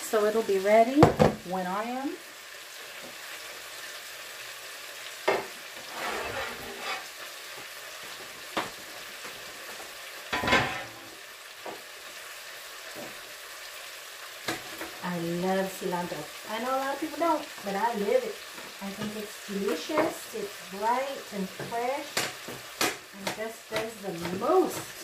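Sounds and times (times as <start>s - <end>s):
food sizzling in a pan: 0.0s - 25.0s
kitchen knocks and clatters: 1.0s - 1.4s, 5.3s - 7.0s, 8.1s - 11.1s.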